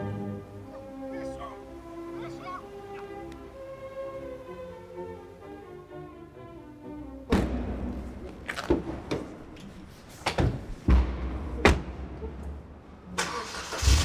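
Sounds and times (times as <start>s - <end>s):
music: 0.0s - 10.0s, 10.6s - 13.9s
heavy thuds and slams: 10.3s - 12.0s.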